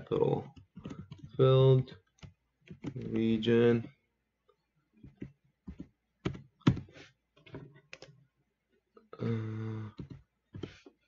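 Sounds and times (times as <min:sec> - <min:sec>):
keyboard and mouse clicking: 0:00.4 - 0:01.4, 0:02.0 - 0:03.2
person humming: 0:09.2 - 0:10.1.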